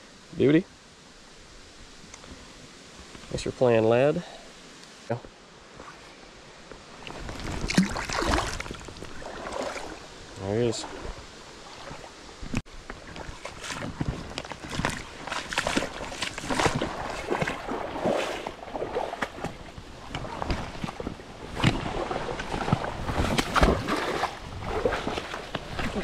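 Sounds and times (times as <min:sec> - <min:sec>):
stream water splashing: 0:05.7 - 0:26.0.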